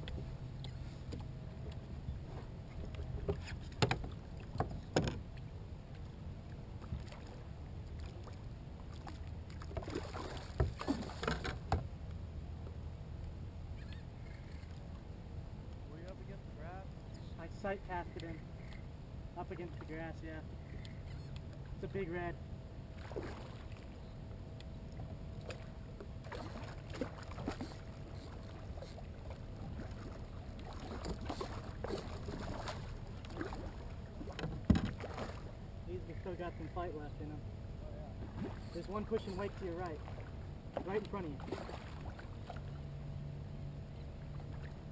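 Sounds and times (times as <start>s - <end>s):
water lapping against kayak hull: 0.0s - 11.9s, 22.9s - 24.1s, 24.8s - 36.9s, 38.0s - 43.0s
knocks against kayak hull: 3.3s - 5.2s, 34.4s - 35.0s.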